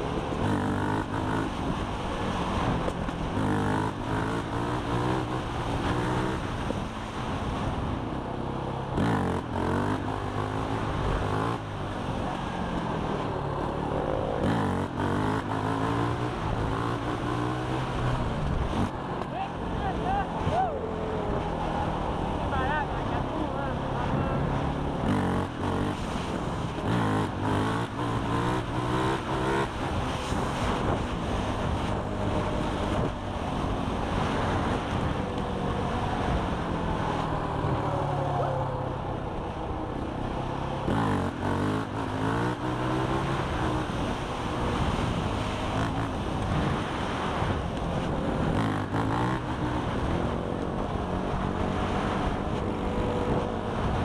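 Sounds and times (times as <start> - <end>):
quad engine revving: 0.0 - 1.8, 3.3 - 6.8, 9.0 - 11.7, 13.3 - 19.1, 23.7 - 33.2, 40.5 - 47.5, 48.3 - 50.3
wind rush on microphone: 17.6 - 54.0.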